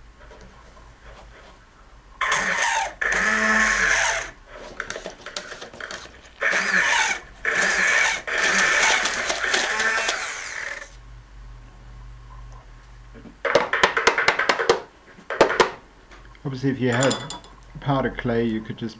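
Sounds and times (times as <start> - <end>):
immersion blender whining: 2.2 - 4.4, 5.9 - 11.0.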